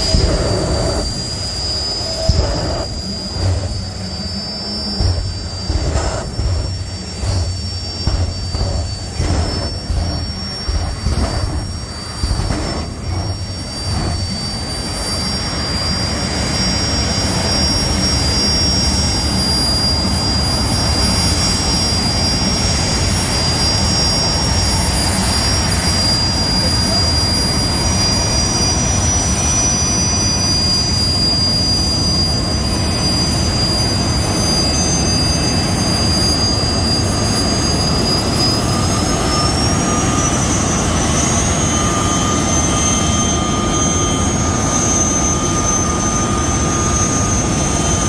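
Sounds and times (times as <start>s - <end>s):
afterburner blasts: 0.0s - 15.0s
jet turbine engines whining: 0.0s - 48.0s.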